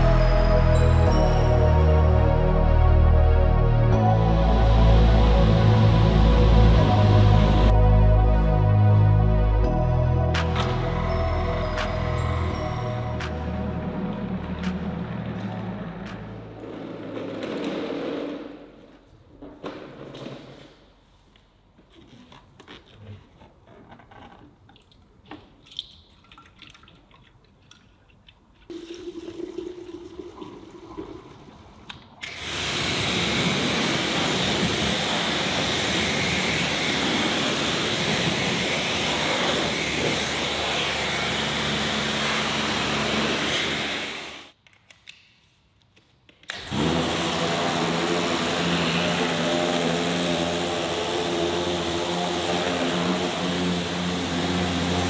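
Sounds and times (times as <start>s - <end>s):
pressure washer spraying water: 32.2s - 44.5s, 46.5s - 55.0s
pump motor humming: 32.2s - 44.5s, 46.5s - 55.0s.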